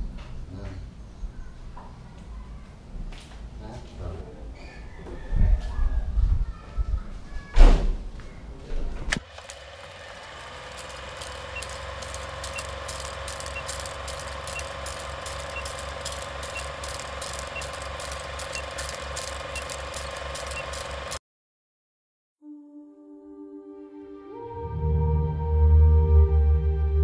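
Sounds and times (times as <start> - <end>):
film clicking through projector: 9.1 - 21.2
film projector whirring: 9.1 - 21.2.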